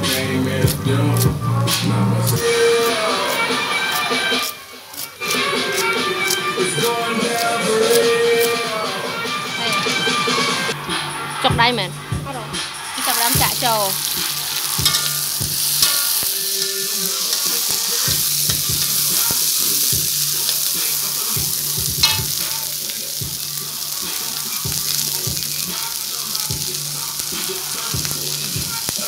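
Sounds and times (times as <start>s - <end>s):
metal spatula scraping wok: 12.9s - 21.2s, 22.0s - 22.4s
insects sizzling in a wok: 13.0s - 29.0s.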